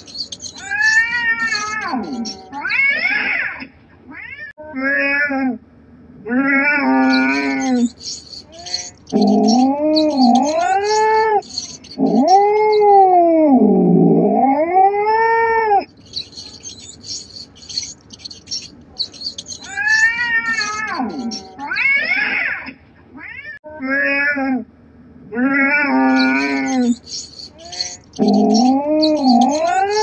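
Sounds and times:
cat yowling: 0.0s - 3.5s, 6.3s - 13.8s, 14.4s - 22.4s, 25.4s - 30.0s.

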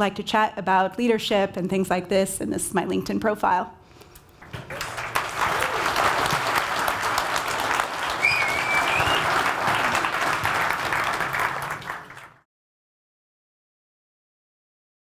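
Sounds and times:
audience applauding: 4.4s - 12.4s.

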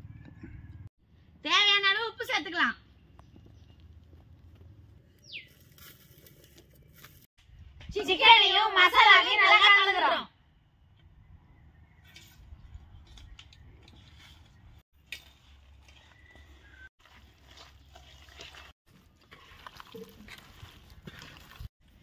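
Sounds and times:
hands squelching wet paste: 15.8s - 22.0s.

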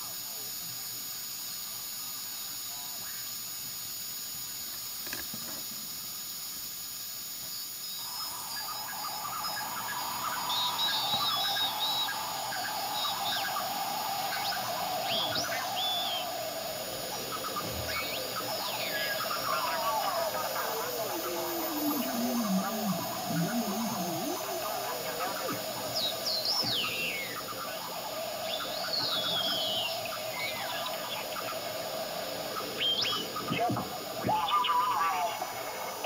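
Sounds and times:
radio static hiss: 0.0s - 36.0s
garbled radio signals and whistles: 17.1s - 30.0s.

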